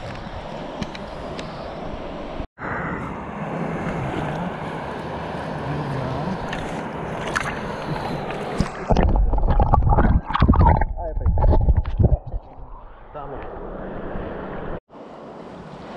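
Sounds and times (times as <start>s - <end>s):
light water splashes: 3.8s - 10.7s.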